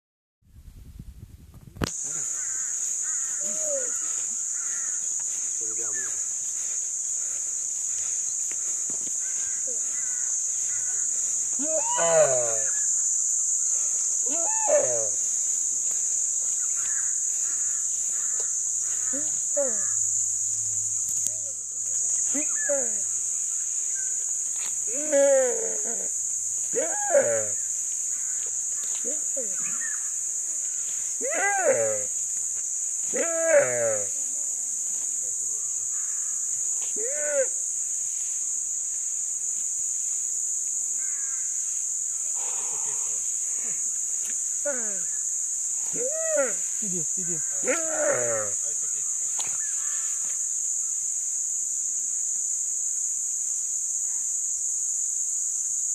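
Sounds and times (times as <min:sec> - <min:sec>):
high insect hum: 0:00.6 - 0:55.9
drawn-out animal cry: 0:09.2 - 0:12.8, 0:14.3 - 0:15.2
short animal calls: 0:11.6 - 0:12.8.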